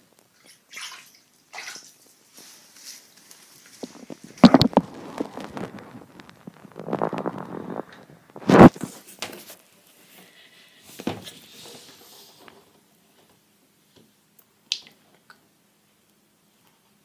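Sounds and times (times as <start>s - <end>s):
faint rustling: 2.1s - 13.4s.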